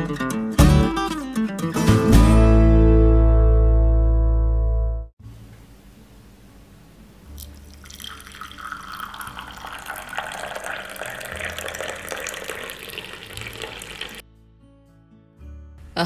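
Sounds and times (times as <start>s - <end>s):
tea pouring into a ceramic mug: 7.4s - 14.2s.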